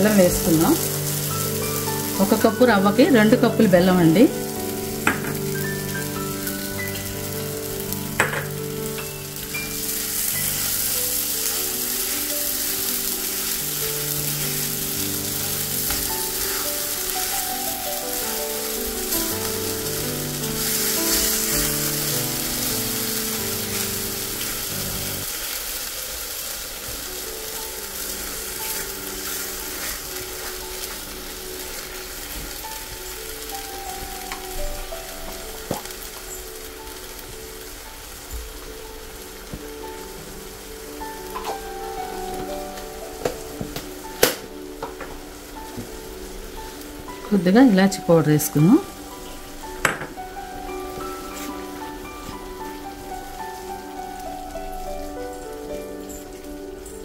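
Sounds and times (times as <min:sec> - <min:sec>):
instrumental background music: 0:00.0 - 0:25.3, 0:26.9 - 0:57.0
sweet sizzling and bubbling in a pan: 0:00.0 - 0:57.0
spatula scraping a pan: 0:15.3 - 0:16.8.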